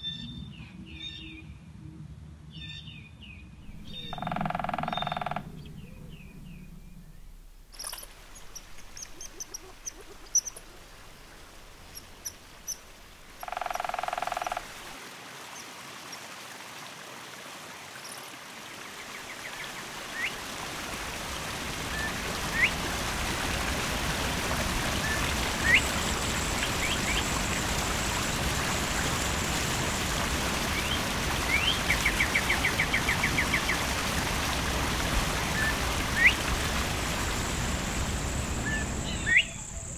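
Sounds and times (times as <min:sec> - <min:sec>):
creek and waterfall rushing: 0:03.6 - 0:39.8
high bird chirps: 0:03.7 - 0:10.7, 0:38.7 - 0:39.9
rapid bird trill: 0:03.7 - 0:10.9.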